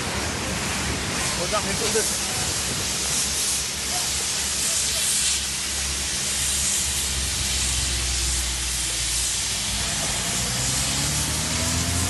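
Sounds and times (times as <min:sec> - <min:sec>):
heavy rain hiss: 0:00.0 - 0:12.0
truck engine approaching: 0:07.2 - 0:12.0.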